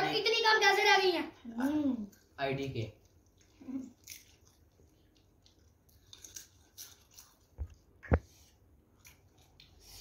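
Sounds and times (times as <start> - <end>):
potato chips crunching: 5.5 - 7.5.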